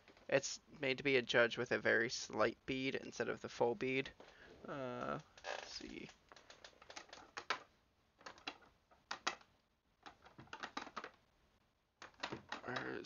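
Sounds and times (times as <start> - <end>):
plastic discs clicking together: 5.2 - 11.3, 12.0 - 13.0.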